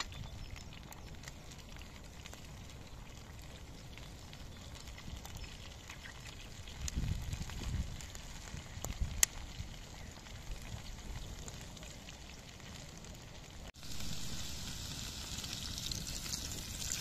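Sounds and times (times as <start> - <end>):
faint clicks from fire: 0.0 - 13.6
food frying in a pan: 0.0 - 17.0
wood fire crackling: 0.0 - 17.0.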